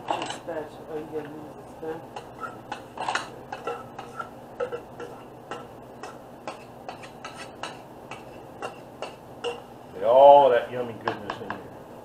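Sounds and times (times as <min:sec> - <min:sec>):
utensil scraping metal bowl: 0:00.0 - 0:00.6, 0:01.2 - 0:09.7.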